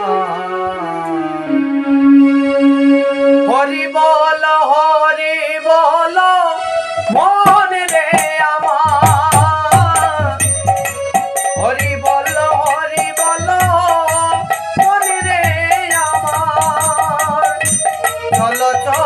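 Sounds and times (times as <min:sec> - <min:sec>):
electronic keyboard accompaniment: 0:00.0 - 0:19.0
man singing devotional song: 0:03.4 - 0:19.0
percussion beat: 0:07.4 - 0:19.0.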